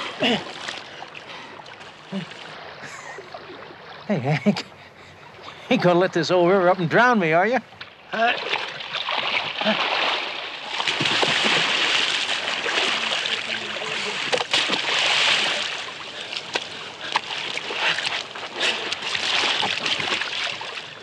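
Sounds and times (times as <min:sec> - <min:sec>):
sharp splashes: 0:07.8 - 0:21.0
river water rushing: 0:08.0 - 0:21.0.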